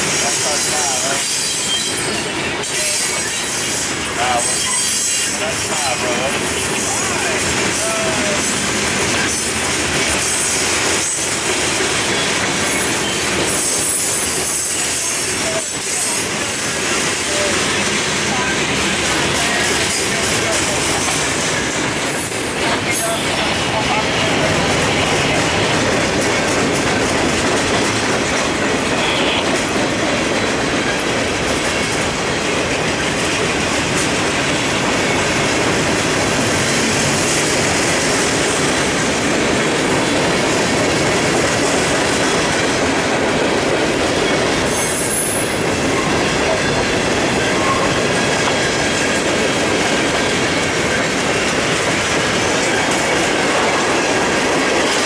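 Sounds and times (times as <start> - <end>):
steel wheels rolling on rail: 0.0 - 55.0
wheels clacking over rail joints: 0.0 - 55.0.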